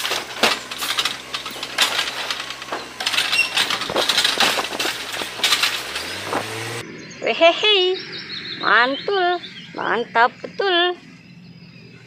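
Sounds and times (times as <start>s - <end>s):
garbage clattering into truck hopper: 0.0s - 6.7s
truck engine and hydraulics hum: 0.0s - 12.0s.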